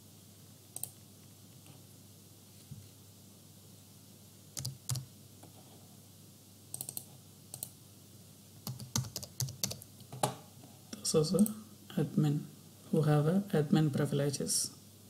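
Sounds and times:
computer keystrokes: 0.8 - 1.0, 4.6 - 5.1, 6.7 - 7.7, 8.6 - 9.9.

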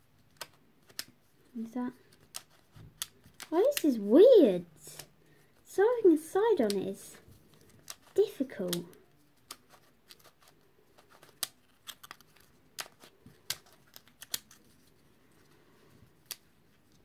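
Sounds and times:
plastic puzzle clicking: 0.2 - 1.2, 2.0 - 3.9, 4.9 - 5.1, 7.5 - 14.8, 16.2 - 16.5.

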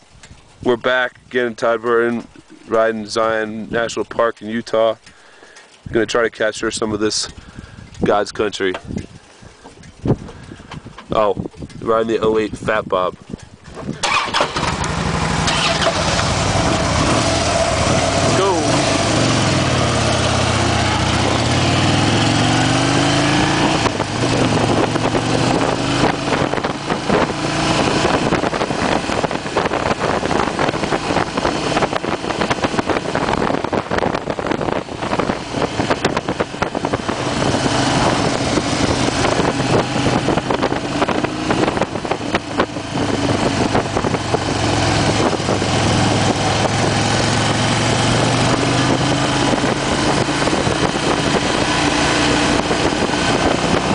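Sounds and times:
wind buffeting microphone: 5.7 - 53.9
motorcycle engine accelerating: 13.6 - 53.9.

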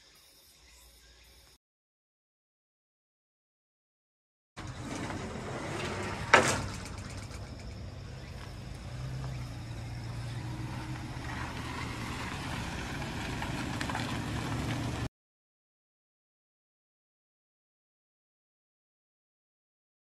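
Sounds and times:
van engine running: 4.6 - 15.1.

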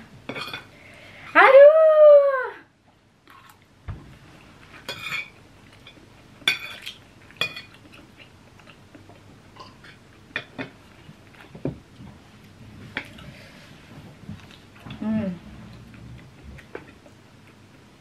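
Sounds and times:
cutlery clinking on plate: 4.8 - 7.8.

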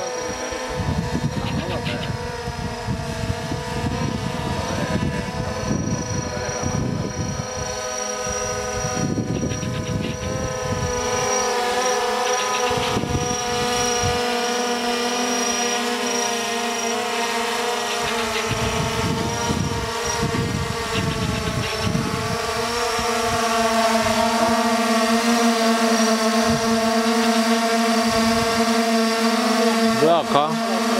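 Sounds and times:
wind rumbling on microphone: 0.0 - 11.6, 12.3 - 14.8, 18.0 - 24.9, 26.3 - 27.2, 28.0 - 28.7
drone propeller whine: 0.0 - 30.9.

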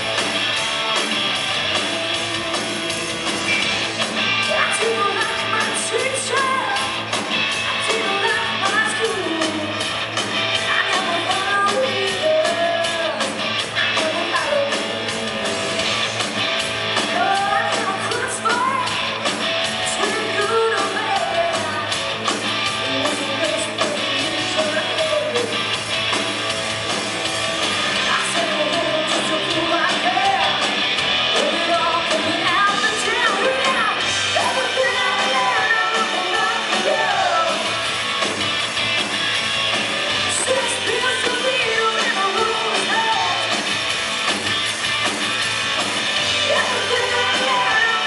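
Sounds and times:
live hard rock band: 0.0 - 48.0
woman singing: 4.4 - 7.0, 7.7 - 9.9, 10.6 - 15.4, 17.0 - 19.2, 19.8 - 22.0, 22.8 - 25.6, 28.0 - 30.6, 31.4 - 37.8, 40.3 - 43.5, 46.4 - 48.0.

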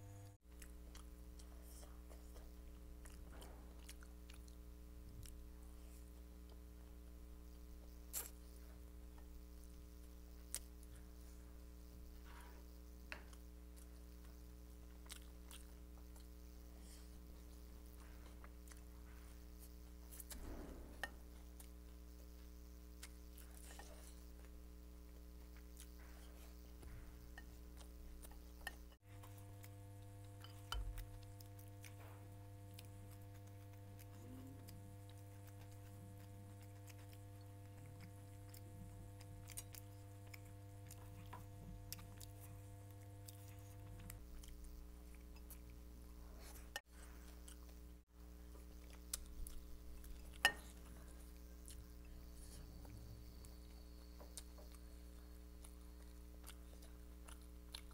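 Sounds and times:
steady electrical hum: 0.0 - 57.9
chewing and mouth sounds: 0.5 - 6.7, 12.1 - 57.9.

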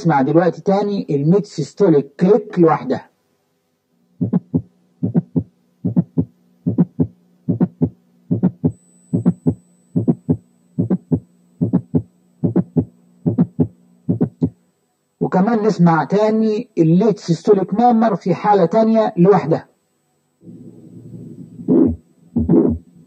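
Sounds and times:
faint steady hum: 0.0 - 23.0
heartbeat with click: 4.2 - 14.6.

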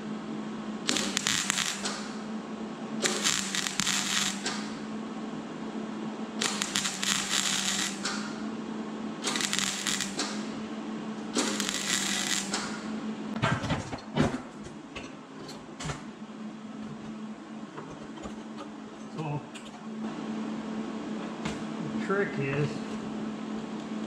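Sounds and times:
steady low hum: 0.0 - 24.0
crackling welding arc: 0.9 - 2.3, 3.0 - 4.9, 6.4 - 8.4, 9.2 - 10.6, 11.3 - 12.9.

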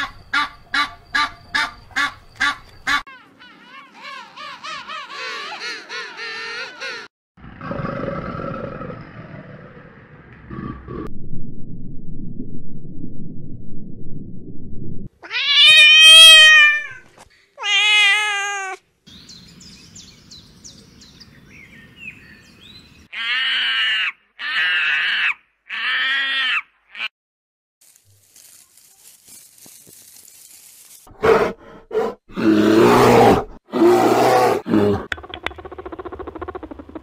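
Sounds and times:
alligator low rumble: 7.4 - 15.1, 35.0 - 37.0
cat meowing: 15.2 - 17.0, 17.6 - 18.8.

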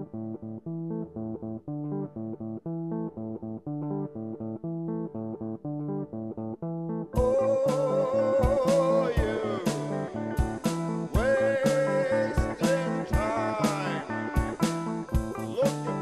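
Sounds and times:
plucked guitar line: 0.0 - 16.0
low bass line: 6.6 - 16.0.

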